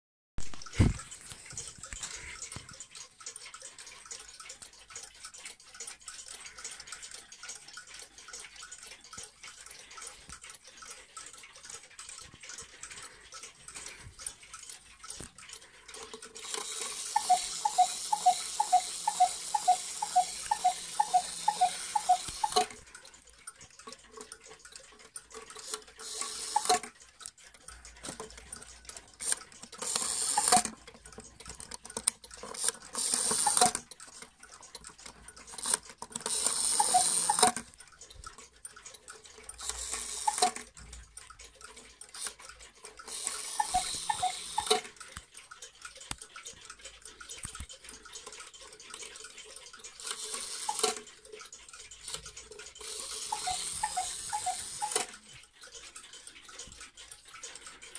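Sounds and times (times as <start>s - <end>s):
clock ticking: 0.4s - 57.9s
cuckoo clock calls: 15.8s - 22.9s, 25.3s - 27.0s, 28.0s - 34.2s, 34.9s - 37.8s, 39.3s - 40.8s, 42.1s - 45.3s, 46.7s - 57.9s.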